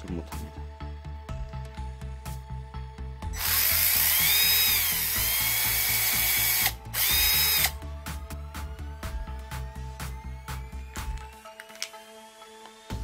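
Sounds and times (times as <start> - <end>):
cordless drill motor whine: 3.3 - 7.8.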